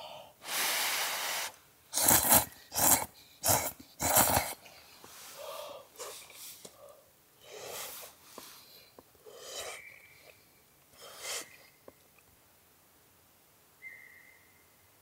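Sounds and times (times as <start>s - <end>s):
person breathing: 0.0s - 1.6s, 2.5s - 10.4s.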